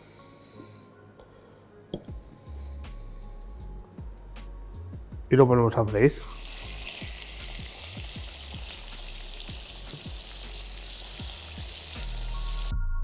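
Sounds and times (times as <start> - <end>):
meat sizzling in hot oil: 6.2 - 12.7.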